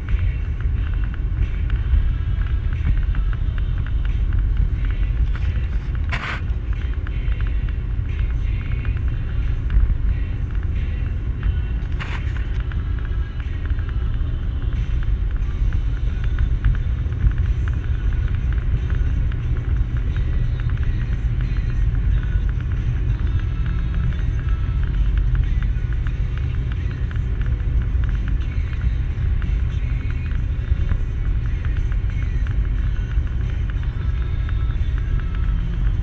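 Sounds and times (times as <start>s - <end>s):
car cabin road rumble: 0.0s - 36.0s.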